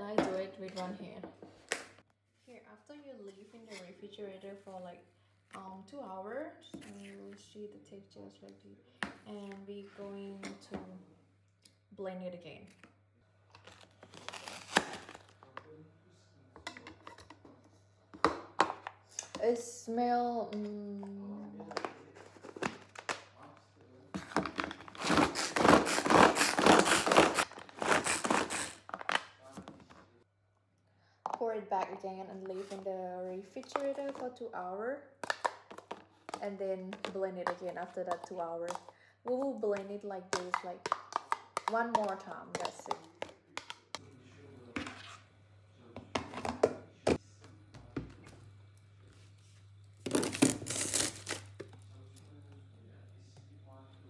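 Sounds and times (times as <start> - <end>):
plastic tub clicking and crinkling: 35.2 - 38.9, 40.3 - 44.0.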